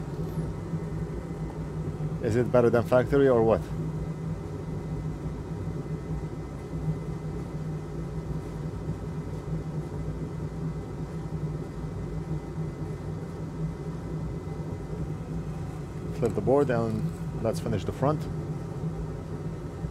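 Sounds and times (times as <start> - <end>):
low machine hum: 0.0 - 19.9.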